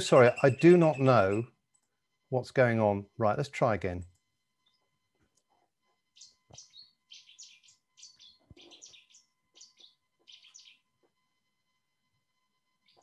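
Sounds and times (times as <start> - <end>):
warbler song: 0.0 - 2.0, 4.6 - 5.0, 5.9 - 11.0, 12.7 - 13.0.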